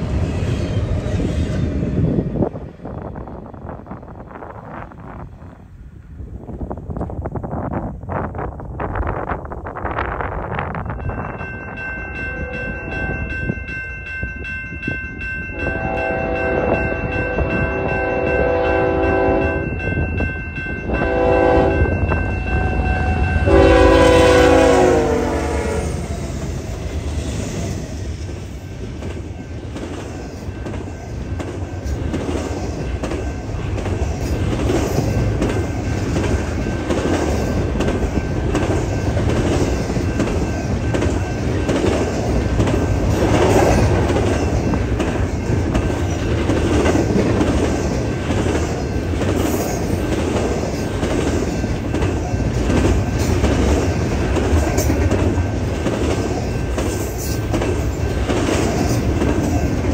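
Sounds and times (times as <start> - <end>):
train cars rumbling: 0.0 - 59.9
train horn blasts: 12.2 - 13.3, 15.5 - 19.8, 20.9 - 26.1
wheels clickety-clack over rail joints: 26.0 - 59.9.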